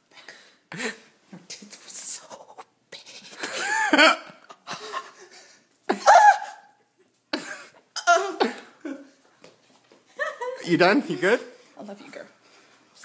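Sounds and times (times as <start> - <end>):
person laughing: 3.3 - 9.2
person coughing: 7.4 - 9.0.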